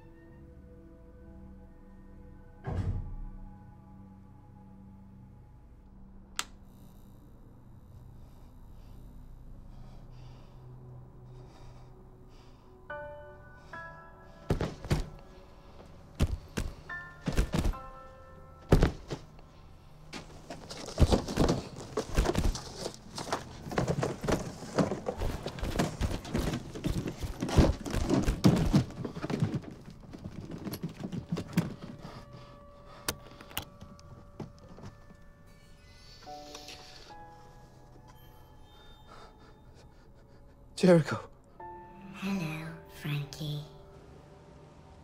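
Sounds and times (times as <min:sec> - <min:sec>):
soft music: 0:00.0 - 0:45.0
objects knocking and thumping: 0:14.5 - 0:15.2, 0:16.2 - 0:17.9, 0:18.6 - 0:19.3, 0:20.1 - 0:32.2
clattering and scraping: 0:20.2 - 0:32.3.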